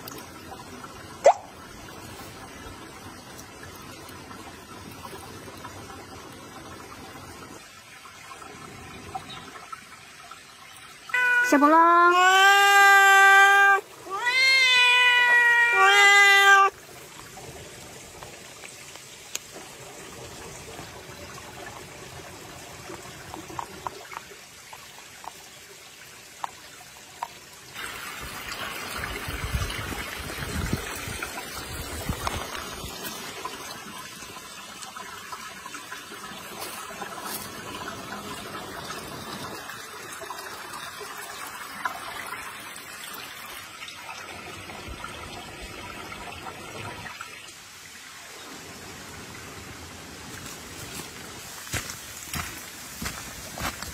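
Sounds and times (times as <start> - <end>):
running water trickling: 0.0 - 53.9
cat meowing: 11.2 - 16.7.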